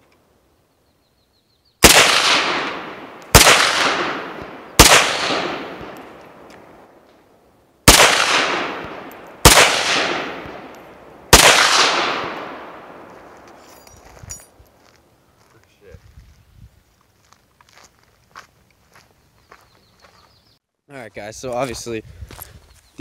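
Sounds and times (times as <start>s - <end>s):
rifle shots with echo: 1.8s - 6.9s, 7.8s - 13.5s.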